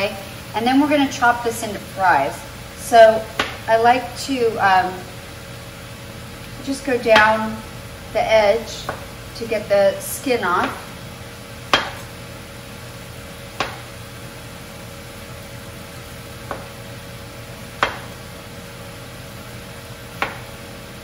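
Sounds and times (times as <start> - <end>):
vegetables sizzling in a pan: 0.0 - 21.0
knife knocking on cutting board: 17.8 - 18.1, 20.2 - 20.4.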